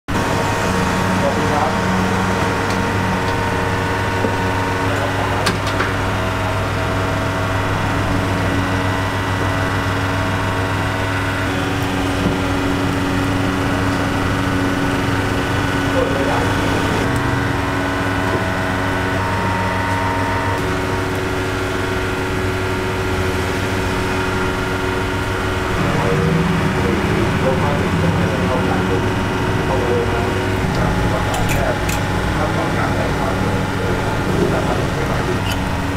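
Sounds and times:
kitchen equipment humming: 0:00.1 - 0:35.9.

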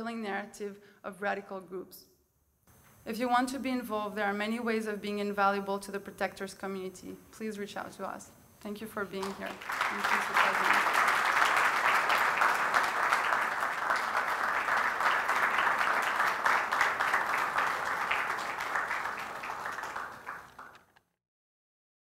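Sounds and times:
audience applauding: 0:09.2 - 0:21.0.

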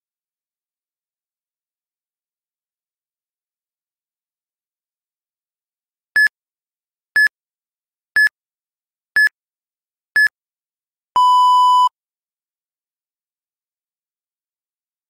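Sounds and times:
long low timer beep: 0:11.2 - 0:11.9.

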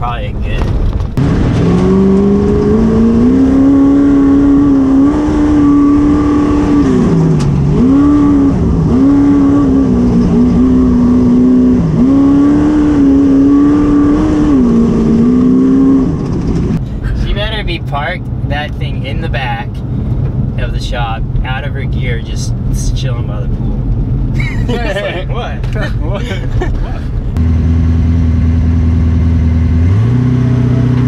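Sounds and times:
truck engine revving hard: 0:01.2 - 0:16.8, 0:27.3 - 0:31.0.

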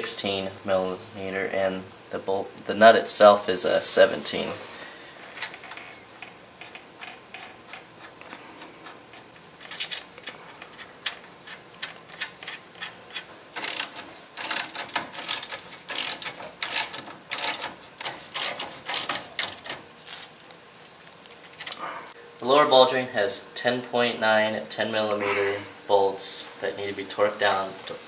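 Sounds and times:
ratchet clicking: 0:09.6 - 0:20.3.

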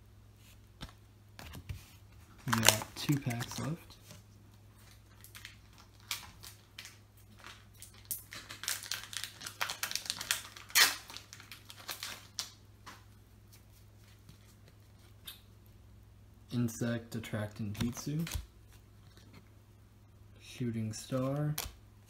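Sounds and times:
foil wrapper crinkling and tearing: 0:02.4 - 0:03.8, 0:04.8 - 0:12.6.

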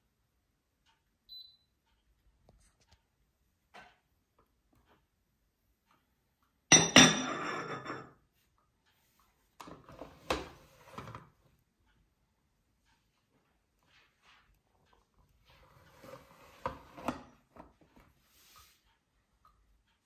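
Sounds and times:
cup clinking on saucer: 0:06.7 - 0:08.2.

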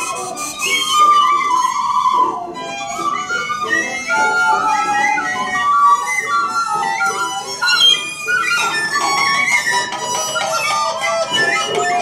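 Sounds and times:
recorder notes: 0:00.0 - 0:12.0
violin notes: 0:02.5 - 0:12.0.

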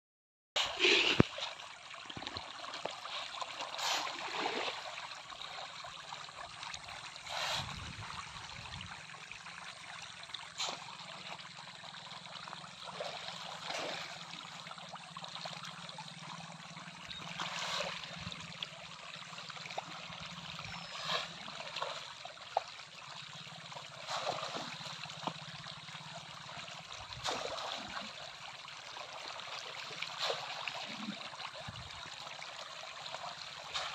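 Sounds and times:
fish splashing at water surface: 0:00.6 - 0:08.2, 0:12.1 - 0:15.0, 0:17.2 - 0:18.6, 0:19.8 - 0:22.8, 0:23.4 - 0:25.9, 0:26.7 - 0:31.2, 0:33.3 - 0:33.9.

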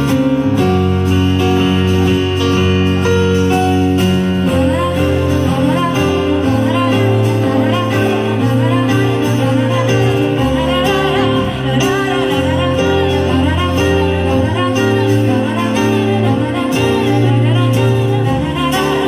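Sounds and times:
live pop band playing: 0:00.0 - 0:19.0
sustained bass notes: 0:00.0 - 0:19.0
woman singing: 0:04.4 - 0:19.0.

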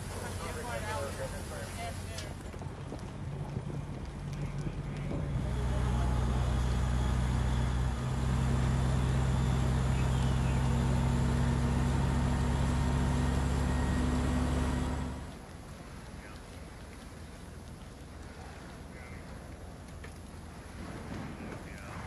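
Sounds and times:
steady hiss: 0:00.0 - 0:02.4
diesel engine humming: 0:00.0 - 0:02.6, 0:04.1 - 0:15.5.

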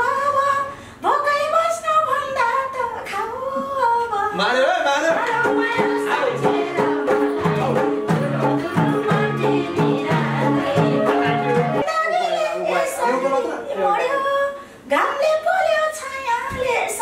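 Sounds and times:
instrumental accompaniment with beat: 0:05.2 - 0:11.9
woman singing folk melody: 0:08.2 - 0:12.2.

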